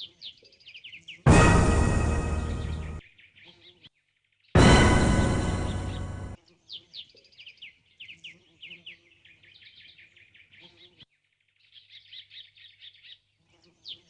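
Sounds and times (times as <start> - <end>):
birds chirping trills: 0.0 - 3.7, 4.6 - 6.9
loud ringing hit: 1.3 - 3.0, 4.6 - 6.4.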